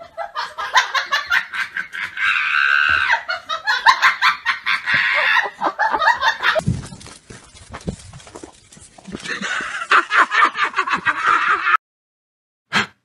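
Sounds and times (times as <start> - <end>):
person laughing hard: 0.0 - 6.6, 9.2 - 11.8.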